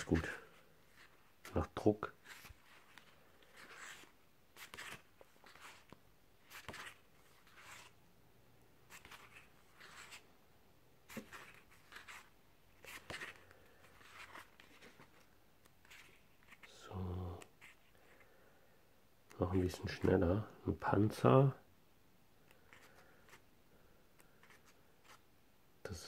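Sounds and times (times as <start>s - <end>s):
paper pages rustling: 0.0s - 8.0s, 8.9s - 10.3s, 11.0s - 16.8s, 22.4s - 23.5s, 24.1s - 25.2s.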